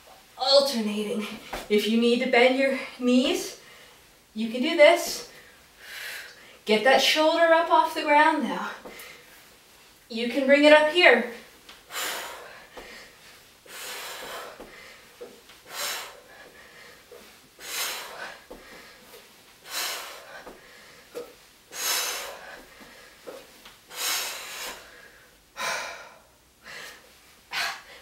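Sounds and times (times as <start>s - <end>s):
woman breathing hard: 11.8s - 28.0s.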